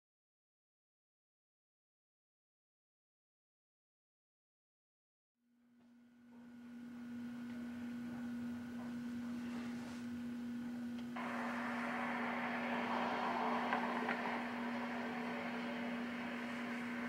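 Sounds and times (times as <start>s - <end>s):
low electrical hum: 5.5s - 17.0s
faint hiss: 11.2s - 17.0s
steady rushing noise: 11.2s - 17.0s.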